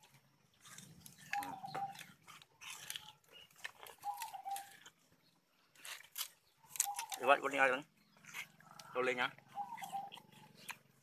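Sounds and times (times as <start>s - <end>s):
sugarcane crunching: 0.0s - 11.0s
bird call: 1.2s - 4.9s, 6.6s - 7.4s, 8.1s - 10.9s.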